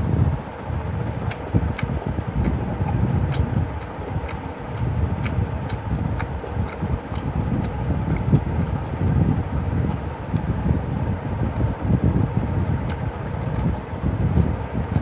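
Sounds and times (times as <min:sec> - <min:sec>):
wet mouth clicks chewing: 0:00.9 - 0:09.0, 0:09.6 - 0:10.5, 0:12.8 - 0:15.0.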